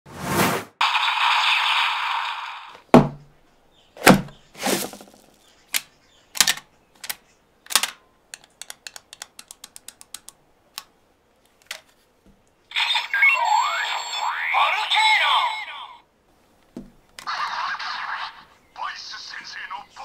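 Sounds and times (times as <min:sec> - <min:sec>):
plastic toy clicks and knocks: 0:05.7 - 0:10.9
quick run of small clicks: 0:05.8 - 0:10.4
electronic toy sound effects: 0:12.7 - 0:16.0.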